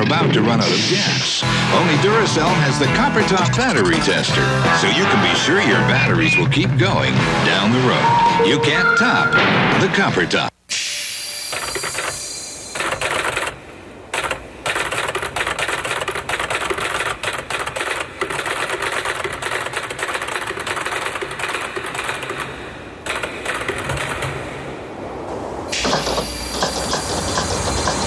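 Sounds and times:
typewriter clacking: 14.2s - 24.4s.

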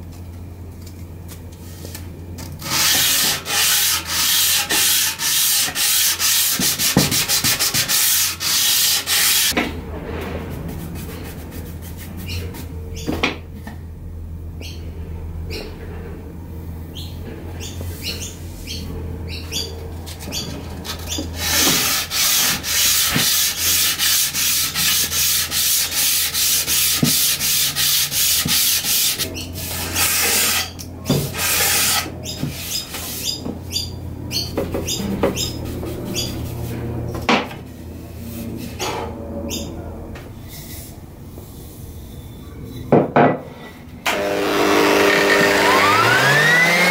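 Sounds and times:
sandpaper rasping on wood: 2.6s - 9.6s, 20.8s - 33.4s.

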